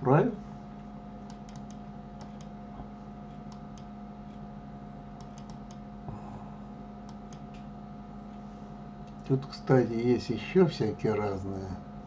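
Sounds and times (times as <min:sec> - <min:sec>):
electrical hum: 0:00.0 - 0:12.0
computer mouse and keyboard clicks: 0:01.2 - 0:02.6, 0:05.2 - 0:05.8, 0:07.0 - 0:07.7.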